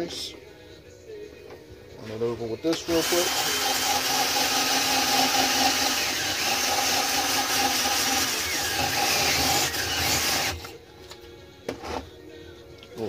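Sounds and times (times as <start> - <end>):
drill motor running: 2.8 - 10.7.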